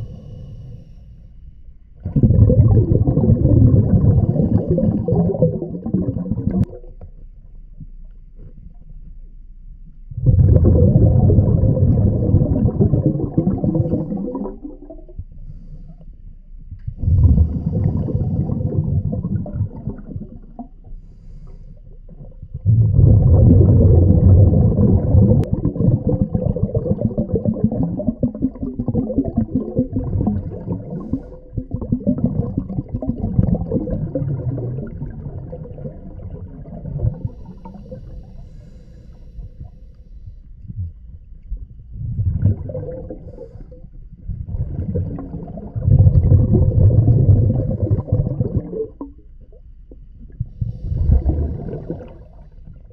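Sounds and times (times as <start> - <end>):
diver breathing through regulator: 0.0 - 1.4, 17.0 - 19.0, 21.0 - 21.9, 30.8 - 31.7, 37.2 - 40.6, 43.1 - 44.0, 50.5 - 52.6
faint steady hum: 0.0 - 52.9
exhaled bubbles underwater: 2.0 - 7.2, 10.1 - 15.4, 16.7 - 21.0, 21.8 - 39.9, 40.5 - 52.9.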